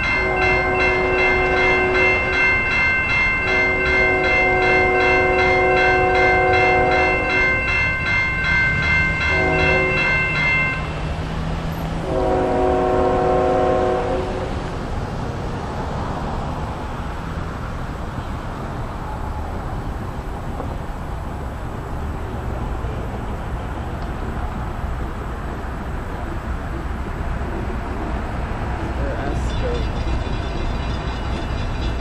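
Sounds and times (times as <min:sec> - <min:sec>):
train horn blasts: 0:00.0 - 0:02.6, 0:03.4 - 0:07.7, 0:09.2 - 0:10.9, 0:12.0 - 0:14.8
crossing warning bell ringing: 0:00.0 - 0:14.9, 0:22.9 - 0:32.0
passing train rumble: 0:00.0 - 0:32.0.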